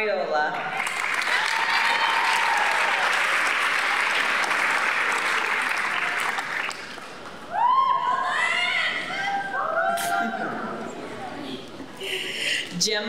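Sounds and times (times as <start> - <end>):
audience applauding: 0.6 - 7.5.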